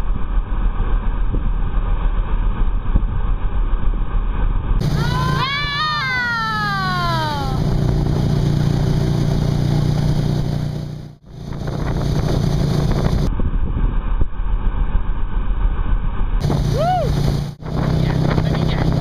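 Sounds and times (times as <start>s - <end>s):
low rumble: 0.0s - 19.0s
boat engine droning: 4.3s - 13.3s, 16.4s - 19.0s
water rushing: 4.8s - 10.6s, 16.4s - 19.0s
wind buffeting microphone: 7.1s - 10.5s, 11.3s - 19.0s.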